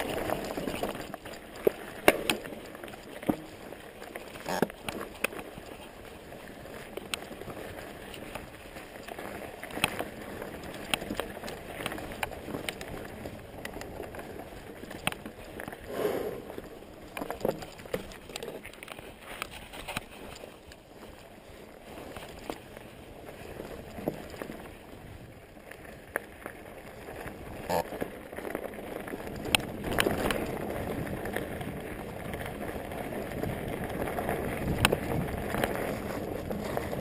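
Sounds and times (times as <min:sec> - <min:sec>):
bike knocks and rattles: 0:00.0 - 0:03.6
bike tyres rolling on dirt: 0:00.0 - 0:37.0.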